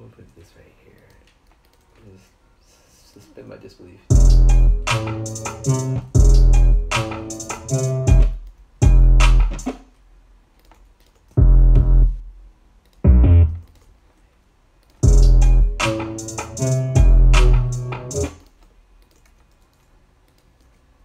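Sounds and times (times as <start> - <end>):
trap beat with deep bass: 4.1 - 9.8, 11.4 - 12.2, 15.0 - 18.4.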